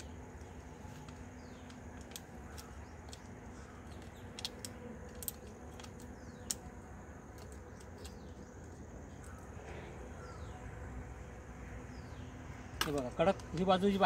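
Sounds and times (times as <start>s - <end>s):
foil packet clicks and snips: 0.9s - 8.2s
faint bird chirps: 5.9s - 12.6s.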